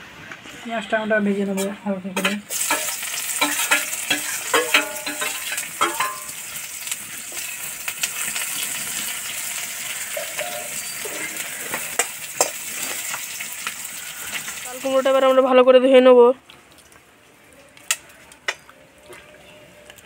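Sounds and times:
onions sizzling in hot oil: 0:01.5 - 0:15.6
steel spoon clinking against pan: 0:02.2 - 0:06.4, 0:10.2 - 0:12.6.

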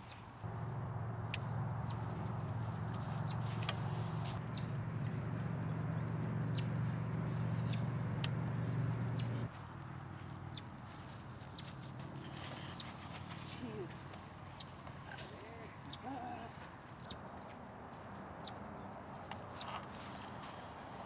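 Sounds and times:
steady low rumble: 0:00.4 - 0:09.5.

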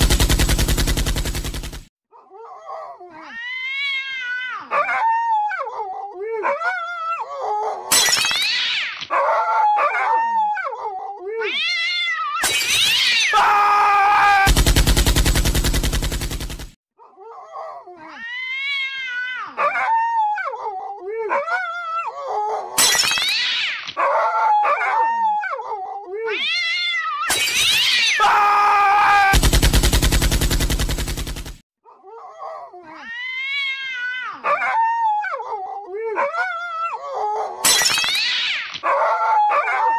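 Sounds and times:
animal yowling: 0:02.4 - 0:14.5, 0:17.3 - 0:29.4, 0:32.2 - 0:39.9.

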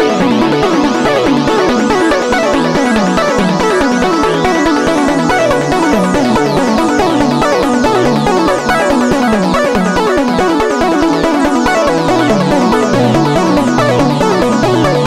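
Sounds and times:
synthesizer stepped notes: 0:00.0 - 0:15.0
synth bass line: 0:11.3 - 0:15.0.

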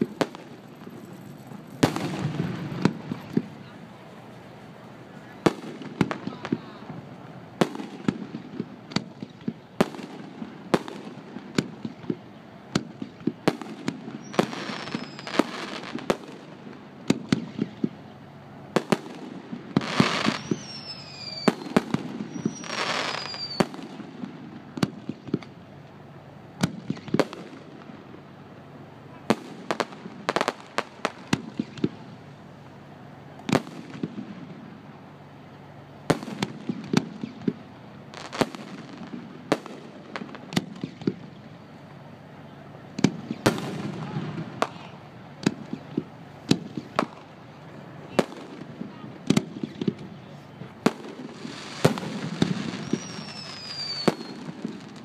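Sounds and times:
fireworks bangs: 0:00.0 - 0:55.0
hissing whooshes with falling whistle: 0:14.2 - 0:15.4, 0:20.1 - 0:21.7, 0:52.7 - 0:54.4.

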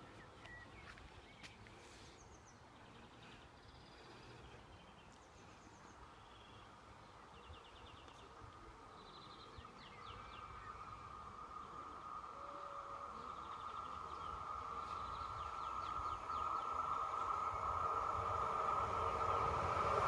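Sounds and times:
birds chirping and trilling: 0:00.0 - 0:20.0
faint low rumble: 0:00.0 - 0:20.0
faint high-pitched tone: 0:10.1 - 0:18.4.

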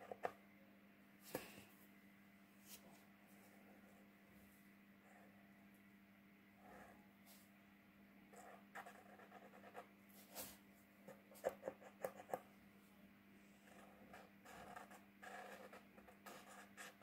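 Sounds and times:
marker scratching on paper: 0:08.4 - 0:12.4, 0:13.6 - 0:17.0.

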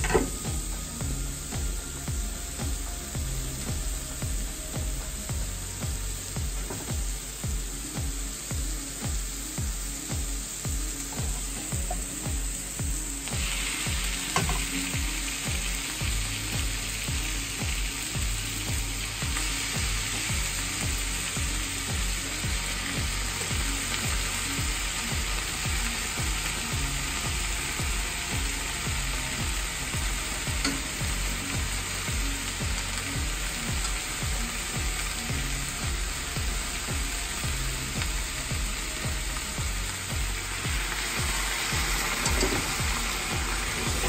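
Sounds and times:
background music with low beat: 0:00.0 - 0:44.0
food sizzling in a frying pan: 0:00.0 - 0:44.0.

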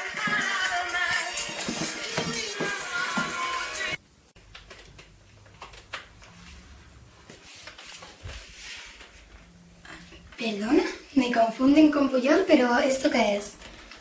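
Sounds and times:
background music: 0:00.0 - 0:04.0.

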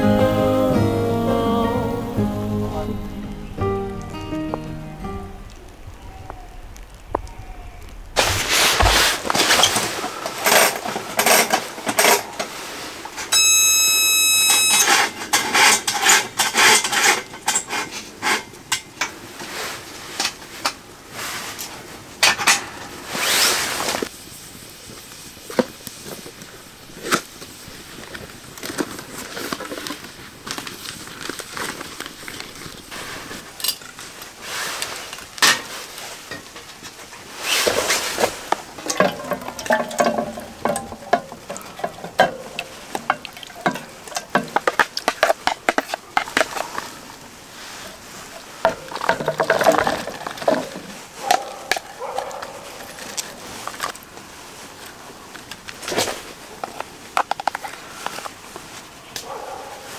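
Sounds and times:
steady high tone: 0:00.0 - 0:05.8
pots and cutlery clinking: 0:09.4 - 0:12.5, 0:14.6 - 0:19.2, 0:35.4 - 0:36.7, 0:38.8 - 0:46.7.

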